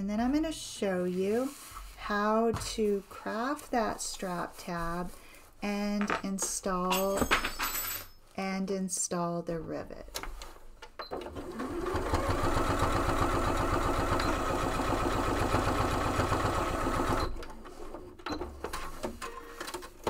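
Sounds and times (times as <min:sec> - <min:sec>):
sewing machine stitching: 0:11.1 - 0:18.0.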